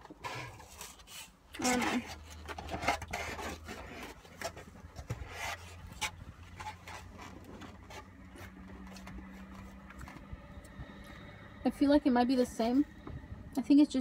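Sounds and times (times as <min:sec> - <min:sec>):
foam container creaking: 0:00.0 - 0:11.1
low steady hum: 0:00.0 - 0:14.0.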